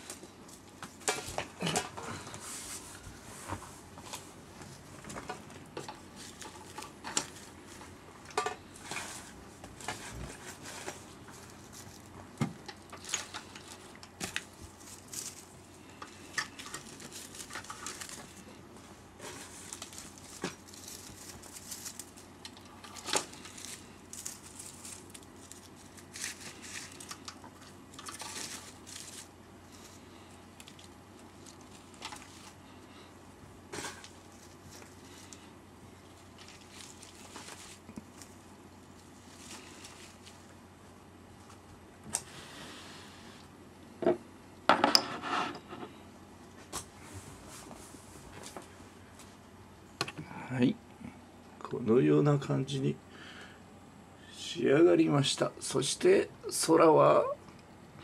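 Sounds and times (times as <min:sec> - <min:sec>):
flower stems rustling and crinkling: 0:00.0 - 0:41.8.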